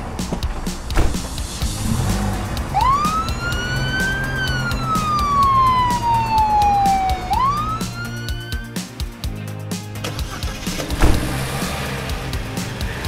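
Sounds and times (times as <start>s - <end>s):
background music with steady beat: 0.0s - 13.0s
ambulance siren wailing: 2.2s - 8.7s.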